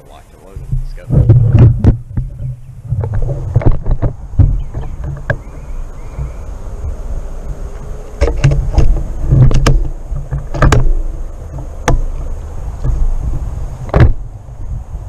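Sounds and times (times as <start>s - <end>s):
wind rumble on microphone: 0.0s - 15.0s
gear knocks and clicks: 7.7s - 14.2s.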